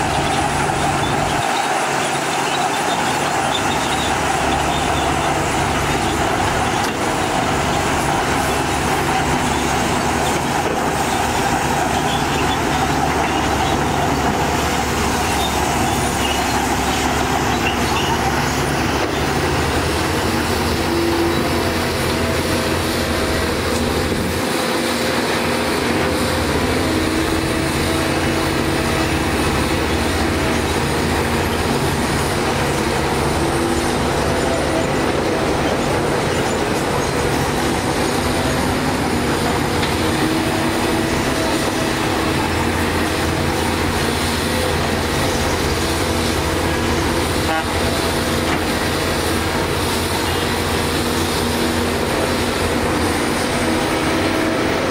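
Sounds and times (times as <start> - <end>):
excavator diesel engine working: 0.0 - 54.9.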